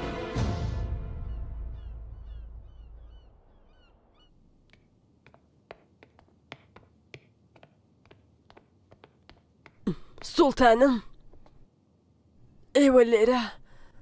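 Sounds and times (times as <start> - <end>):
music: 0.0 - 2.7
gulls calling: 1.2 - 4.4
footsteps on stone floor: 4.5 - 11.6.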